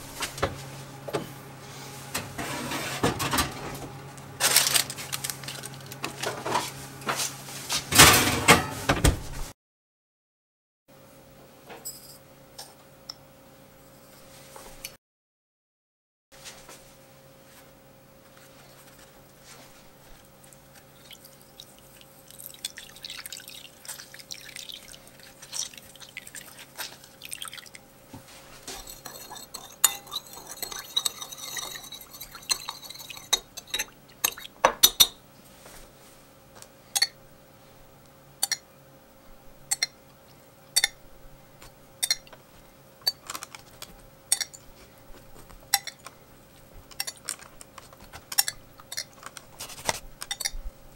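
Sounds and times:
spoon stirring gritty sugar: 20.0s - 35.1s, 43.1s - 50.6s
juice dripping into bowl: 20.4s - 27.9s
spoon clinking on glass: 28.7s - 35.2s, 40.8s - 41.0s, 44.3s - 44.6s, 45.7s - 46.0s, 50.2s - 50.6s.

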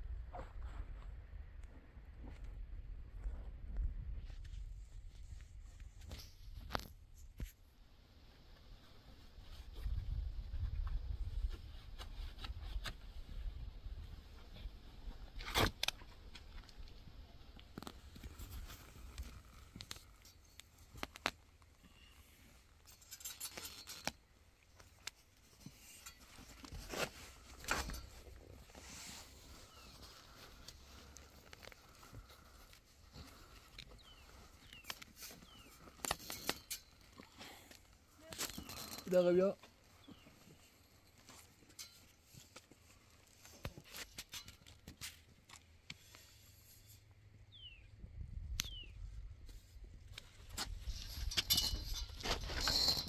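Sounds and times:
cloth and cord rustling scrapes: 17.8s - 37.4s, 50.5s - 53.0s
bird chirps: 34.0s - 35.8s, 47.5s - 47.9s, 48.6s - 49.0s.

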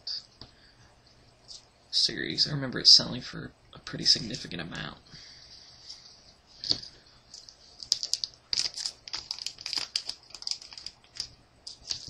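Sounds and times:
foil pack crinkling: 7.4s - 12.0s.

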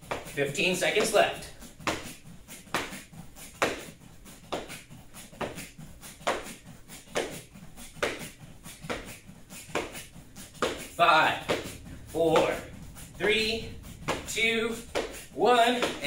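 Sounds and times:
bare feet thudding on foam mats: 0.0s - 16.0s.

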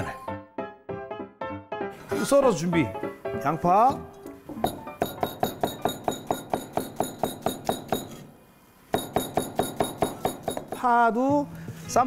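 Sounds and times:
knife chopping onion on board: 4.6s - 8.2s, 9.0s - 10.9s.

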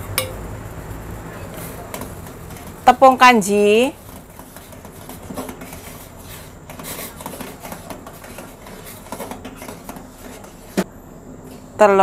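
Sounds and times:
metal ladle clinking on pot: 0.1s - 0.4s.

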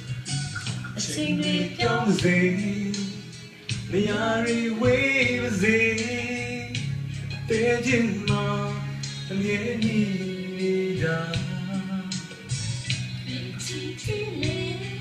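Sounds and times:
backing music: 0.0s - 15.0s
man and woman singing duet: 0.9s - 6.8s.

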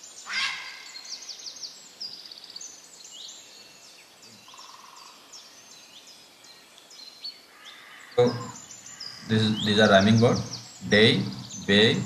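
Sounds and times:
small birds chirping: 0.0s - 12.0s
person speaking: 8.2s - 8.6s, 9.2s - 12.0s.

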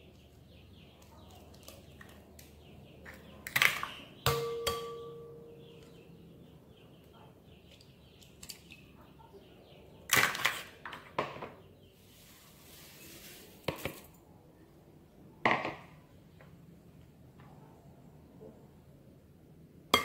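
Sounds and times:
sugar pouring hiss: 12.0s - 13.6s.

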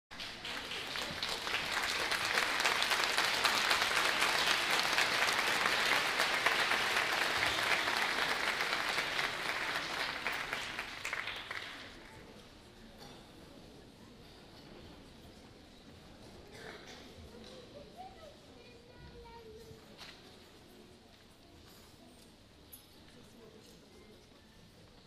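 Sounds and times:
audience applauding: 0.1s - 12.1s.

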